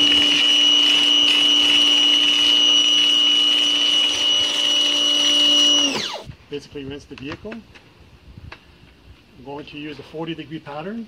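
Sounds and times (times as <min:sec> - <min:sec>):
pressure washer motor whining: 0:00.0 - 0:06.3.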